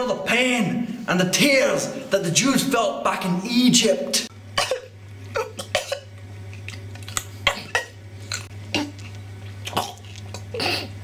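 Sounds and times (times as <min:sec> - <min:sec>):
person coughing and spluttering: 0:04.6 - 0:11.0.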